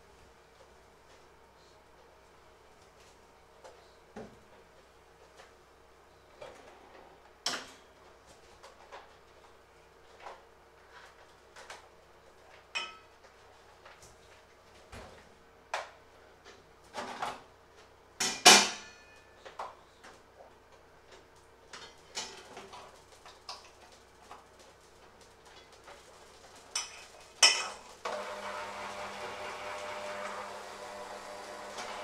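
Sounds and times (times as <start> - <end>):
metal kitchenware clinking: 26.8 - 27.8.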